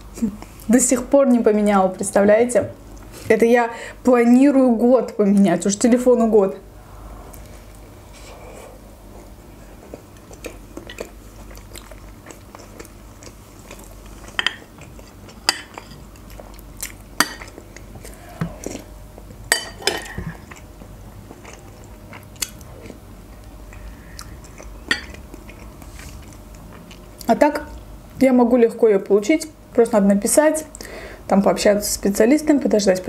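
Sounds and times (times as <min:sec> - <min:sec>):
chewing soft bread: 0:09.1 - 0:19.4, 0:20.1 - 0:27.3.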